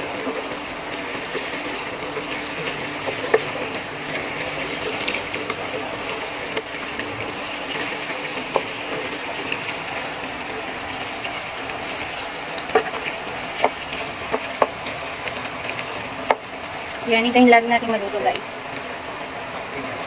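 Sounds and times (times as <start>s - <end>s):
food sizzling in a frying pan: 0.0s - 20.0s
spatula knocking against pan: 12.6s - 13.0s, 13.6s - 14.8s.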